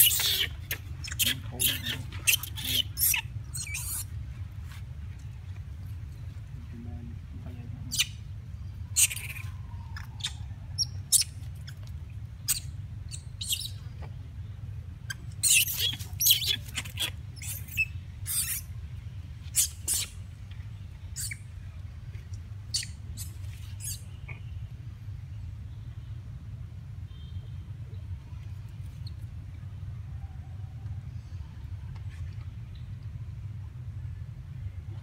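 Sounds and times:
monkeys squeaking and chirping: 0.0 - 4.2, 7.9 - 11.8, 12.4 - 14.0, 15.1 - 18.7, 19.4 - 20.2, 21.1 - 21.5, 22.6 - 24.5.

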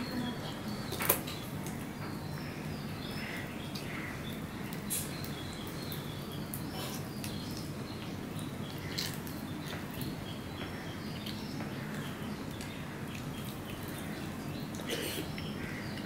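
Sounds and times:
small birds chirping: 0.0 - 16.0
chewing with wet mouth clicks: 4.6 - 16.0.

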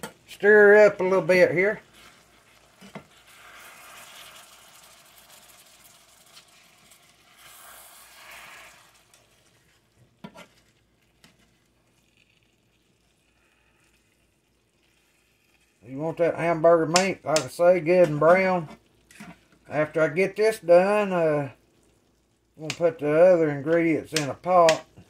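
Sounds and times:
meat sizzling in a skillet: 0.6 - 15.8
spatula scraping a pan: 1.8 - 12.2, 18.6 - 19.5.

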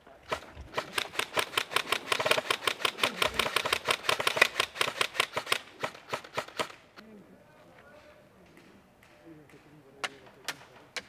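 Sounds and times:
airsoft guns firing: 0.3 - 7.0.

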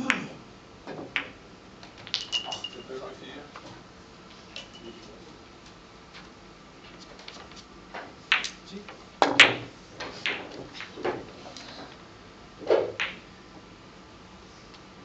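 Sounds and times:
billiard balls clicking: 0.8 - 2.9, 6.8 - 12.0, 12.6 - 13.3.

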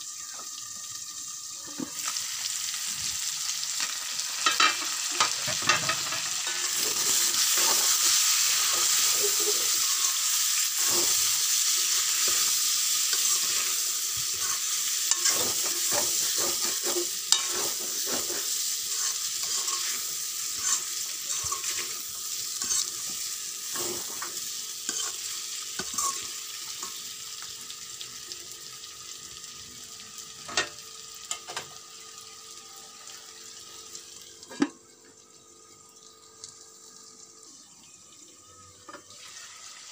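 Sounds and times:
meat sizzling in oil: 0.0 - 34.6, 39.1 - 39.9
metal ladle scraping and clinking: 13.1 - 22.0, 22.6 - 23.0, 24.9 - 25.2.

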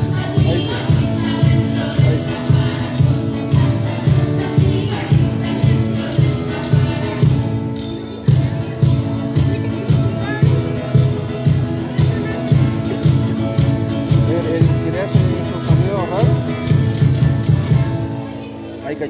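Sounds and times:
cajon beat: 0.0 - 18.2
xylophones playing a tune: 0.0 - 18.8
guitar: 0.0 - 19.0.

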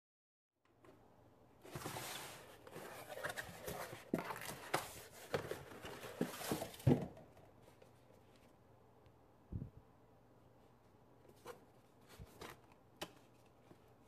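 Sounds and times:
cardboard flaps rustling and scraping: 1.6 - 7.2.

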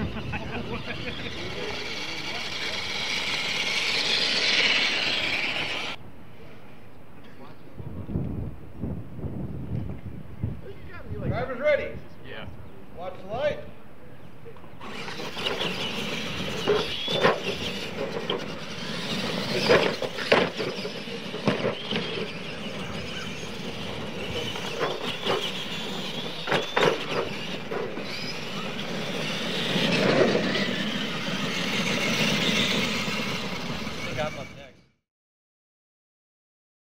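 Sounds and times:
rc truck motors whining: 0.0 - 6.0, 14.6 - 35.0
trucks knocking and clattering: 14.8 - 34.5.

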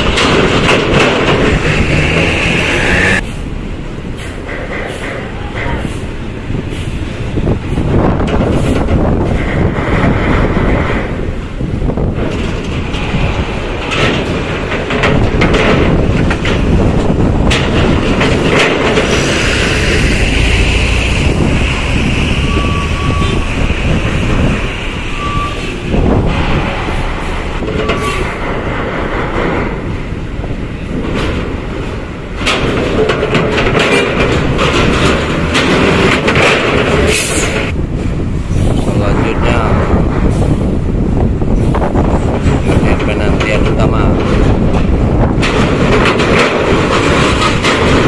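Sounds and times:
sharp knocks and clanks: 0.0 - 3.3, 4.2 - 6.0, 7.4 - 37.8, 41.6 - 48.0
buses driving past: 0.0 - 48.0
short beeps: 22.4 - 23.5.

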